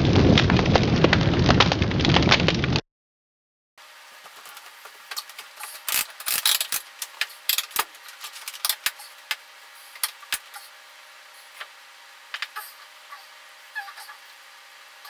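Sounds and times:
faint steady hum: 0:03.8 - 0:15.0
weight bench clicks and creaks: 0:04.5 - 0:09.0.

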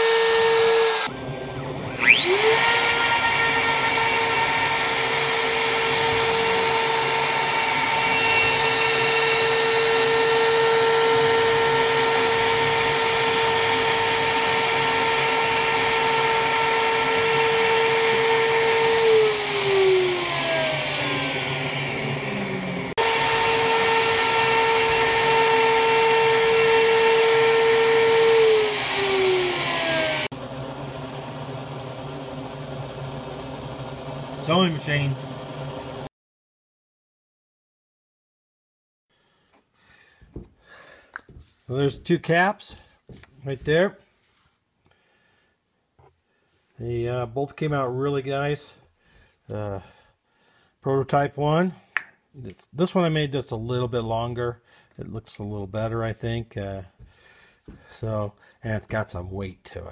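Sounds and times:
router spindle whining: 0:00.0 - 0:36.1.

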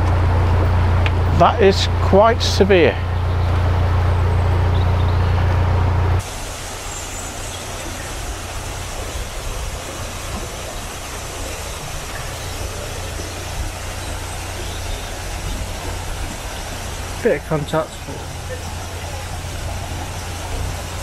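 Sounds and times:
diesel engine humming: 0:00.0 - 0:21.0
even hiss: 0:06.2 - 0:21.0.

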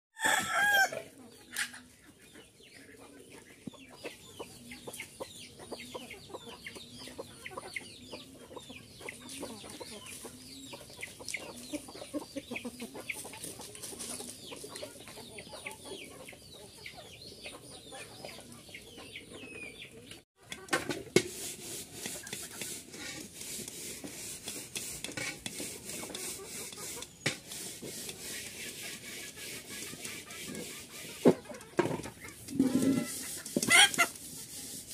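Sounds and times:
chickens clucking: 0:00.2 - 0:34.9
chickens pecking a metal bowl: 0:20.4 - 0:34.6.

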